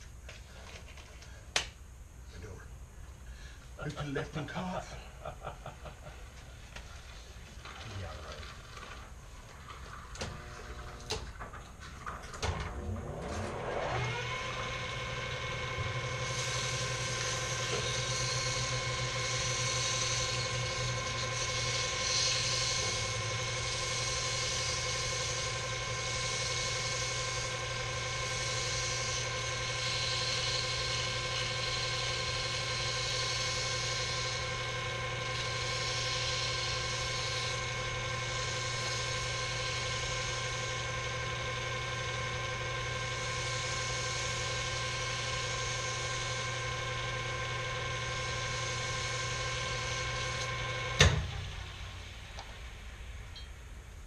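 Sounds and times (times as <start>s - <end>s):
lathe motor whining: 6.7s - 53.4s
wavering hiss of cutting: 16.2s - 34.8s, 35.4s - 41.0s.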